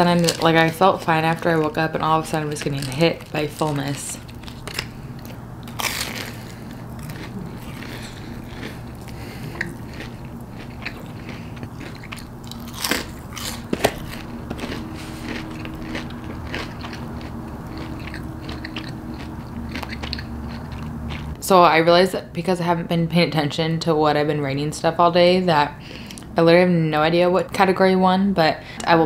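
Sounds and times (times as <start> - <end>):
crunchy chewing: 0.0 - 21.4
steady low hum: 0.0 - 29.0.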